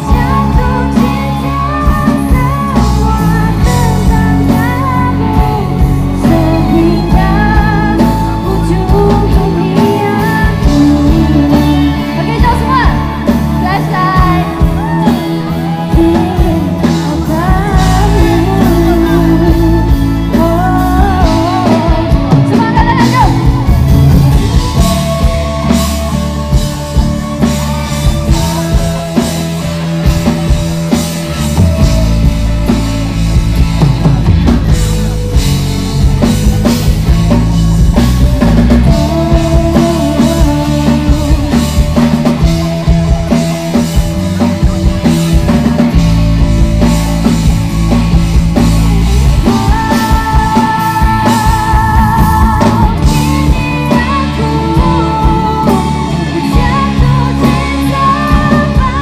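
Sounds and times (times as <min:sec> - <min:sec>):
woman singing: 0:00.0 - 0:30.5, 0:36.4 - 0:59.0
rock band playing live: 0:00.0 - 0:59.0.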